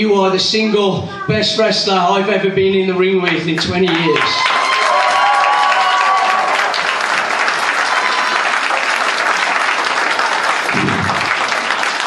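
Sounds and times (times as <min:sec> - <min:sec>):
crowd applauding: 0:03.6 - 0:12.0.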